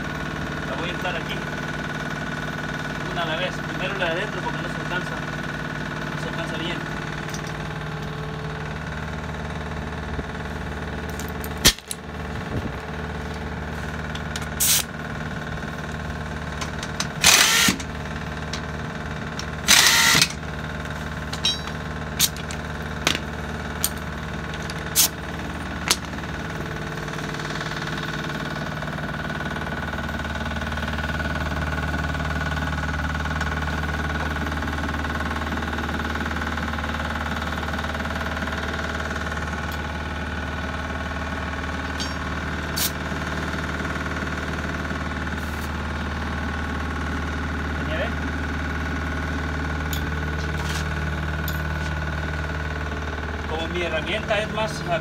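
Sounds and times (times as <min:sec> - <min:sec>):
truck engine idling: 0:00.0 - 0:55.0
pneumatic impact wrench bursts: 0:14.2 - 0:15.0, 0:16.6 - 0:26.2, 0:41.9 - 0:43.1.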